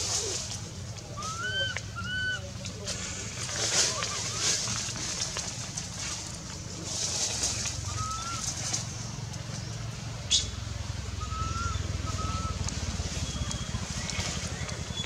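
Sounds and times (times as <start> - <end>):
thin rising whistle-like animal calls: 1.1 - 2.5, 7.7 - 8.6, 11.1 - 14.0.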